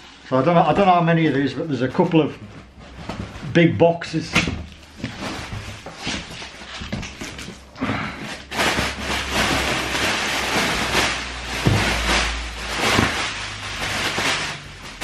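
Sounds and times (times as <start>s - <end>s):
packaging crinkling and rustling: 4.7s - 15.0s.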